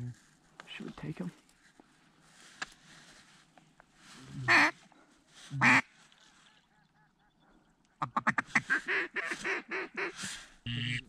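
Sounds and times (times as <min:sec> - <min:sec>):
duck quacks: 0:04.5 - 0:04.8, 0:05.6 - 0:05.9, 0:08.0 - 0:11.0.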